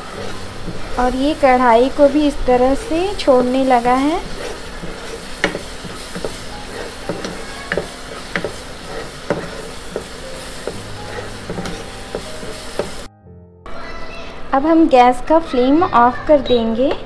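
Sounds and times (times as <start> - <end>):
mixture sizzling in a pan: 0.0 - 13.1
spatula scraping a pan: 0.0 - 13.1.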